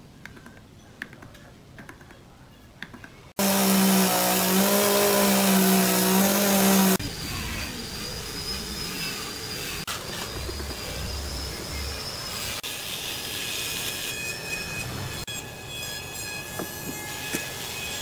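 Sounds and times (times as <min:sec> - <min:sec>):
rotary carving tool humming: 0:03.4 - 0:13.0.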